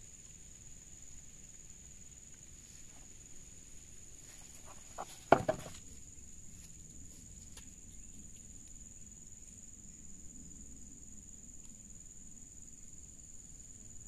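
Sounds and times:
insects droning: 0.0s - 14.0s
cluster of close knocks: 4.7s - 5.8s.

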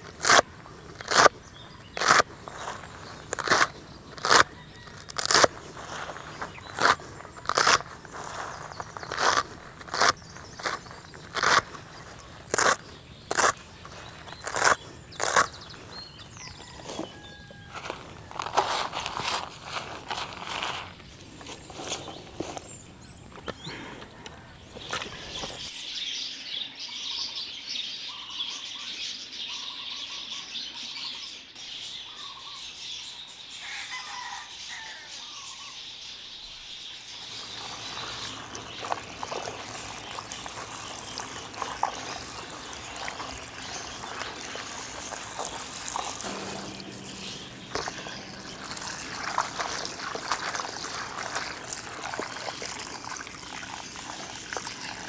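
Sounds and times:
leaves being cut: 0.0s - 22.8s, 37.2s - 55.0s
birds chirping: 0.0s - 55.0s
hose water trickling: 37.2s - 55.0s.

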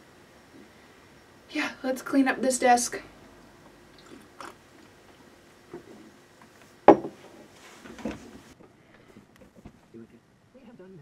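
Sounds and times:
faint handling noises: 4.8s - 10.0s
object knocking on a desk: 6.9s - 7.2s.

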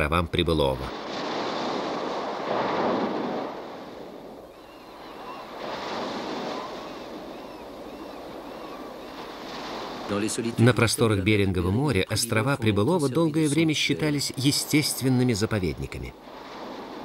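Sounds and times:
wind: 0.0s - 17.0s
surf breaking on rocks: 0.7s - 11.1s, 14.0s - 17.0s.

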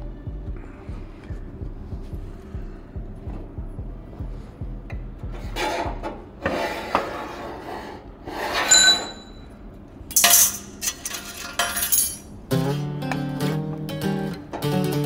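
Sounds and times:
hand scraping steel panel: 5.4s - 9.3s.

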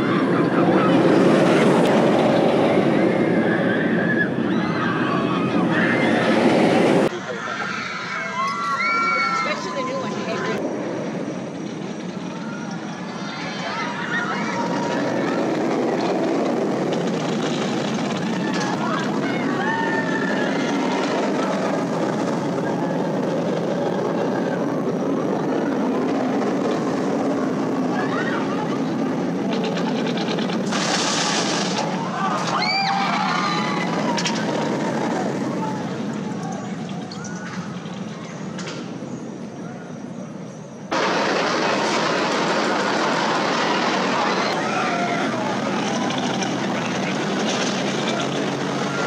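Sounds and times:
roller coaster train roaring: 0.0s - 49.0s
faint riders screaming: 2.6s - 10.6s, 12.2s - 16.3s, 17.2s - 26.4s, 27.5s - 29.4s, 31.7s - 38.5s, 42.5s - 49.0s.

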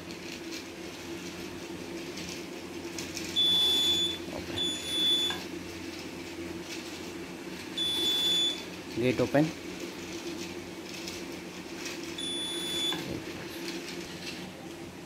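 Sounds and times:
toy train motor hum: 2.2s - 5.4s, 7.6s - 11.2s, 11.8s - 14.6s
high alarm buzzer beeps: 3.4s - 5.4s, 7.8s - 8.6s, 12.2s - 13.0s.

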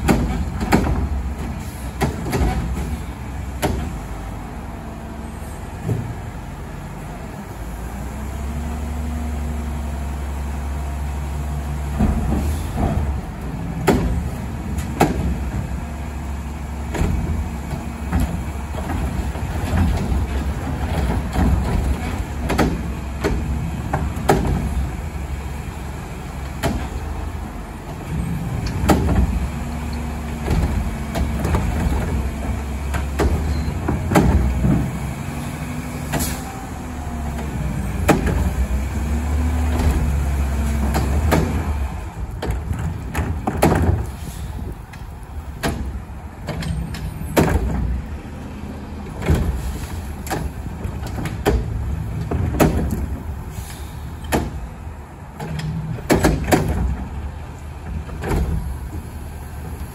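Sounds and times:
sharp knocks and bangs: 0.0s - 3.0s, 11.9s - 15.8s, 30.4s - 35.2s, 37.9s - 38.8s, 39.6s - 44.3s, 45.6s - 48.0s, 49.2s - 53.3s, 54.2s - 54.7s, 55.4s - 57.2s
garbage truck engine running: 0.0s - 59.9s.

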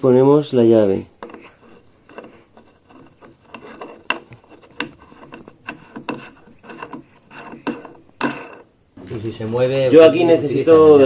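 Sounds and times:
metal parts rubbing: 1.0s - 8.8s.

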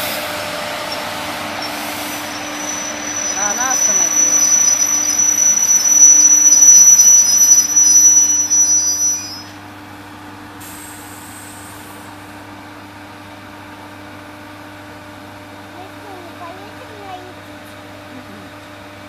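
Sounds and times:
electric train rumble: 0.0s - 19.0s
wheels squealing while braking: 0.2s - 9.6s.

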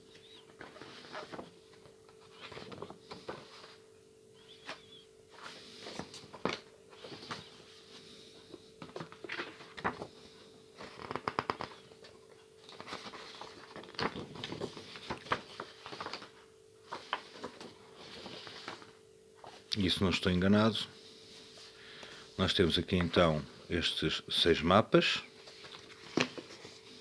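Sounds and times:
paper rustling and crinkling: 0.6s - 3.8s, 4.6s - 7.7s, 8.8s - 10.2s, 10.8s - 19.7s, 25.4s - 27.0s
sharp paper crackles: 12.7s - 18.9s.

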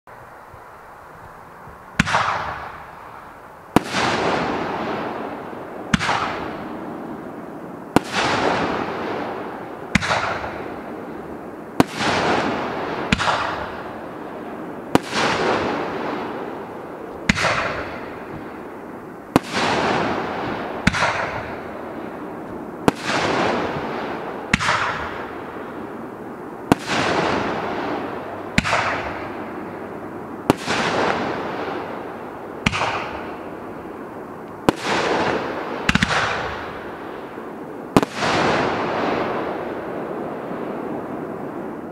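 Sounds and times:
firework crackling hiss: 0.2s - 41.9s
firework bangs: 1.9s - 41.9s.

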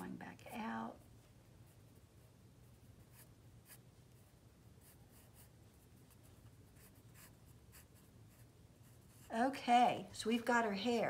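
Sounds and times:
low steady hum: 0.0s - 11.0s
pencil scratching on paper: 1.0s - 9.4s.

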